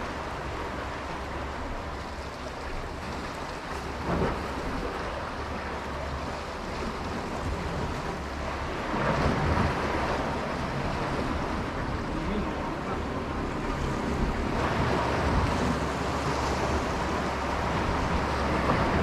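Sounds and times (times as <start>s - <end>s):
sea surf washing on rocks: 0.0s - 19.0s
wind on microphone: 6.2s - 19.0s.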